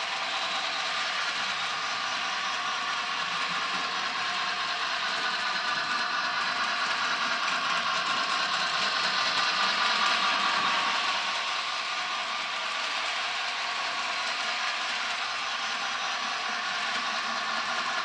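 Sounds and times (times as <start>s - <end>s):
model train wheels clattering: 0.0s - 18.0s.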